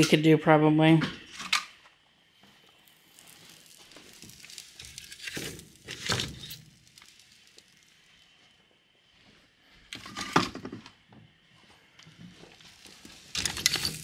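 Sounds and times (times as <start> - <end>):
paper crinkling and crackling: 2.7 - 8.1, 12.5 - 14.0.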